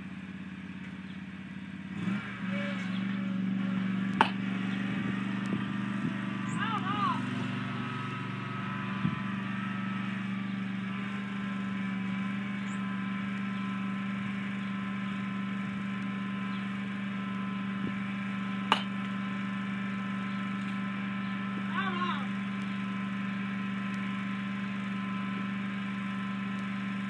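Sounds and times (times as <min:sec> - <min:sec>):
distant lawn mower engine: 0:00.0 - 0:27.0
sharp knock: 0:04.2 - 0:04.4, 0:18.7 - 0:18.9.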